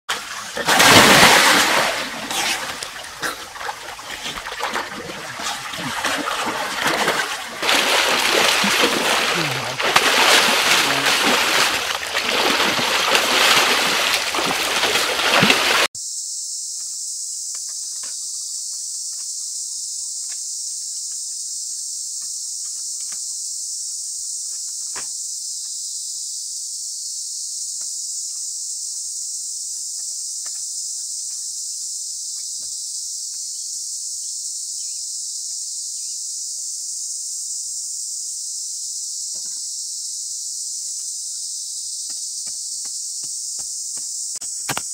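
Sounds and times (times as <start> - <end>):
water splashing and sloshing: 0.1 - 15.9
insects chorus: 0.1 - 44.9.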